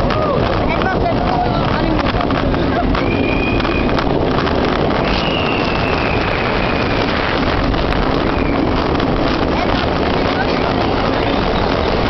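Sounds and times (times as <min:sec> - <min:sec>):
roller coaster on steel track: 0:00.0 - 0:12.0
wind rushing over microphone: 0:00.0 - 0:12.0.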